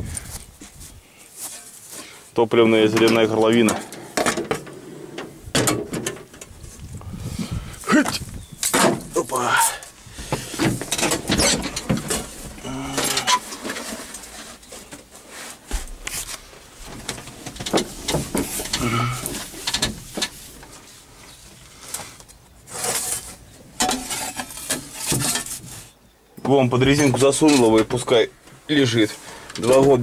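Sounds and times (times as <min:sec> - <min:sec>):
short vocal sounds: 0:12.6 - 0:13.4.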